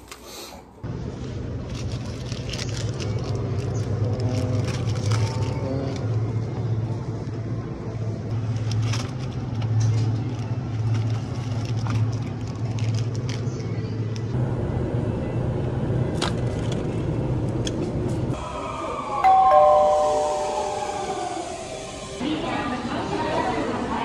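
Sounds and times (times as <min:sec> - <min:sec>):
high steady braking tones: 0:19.2 - 0:22.2.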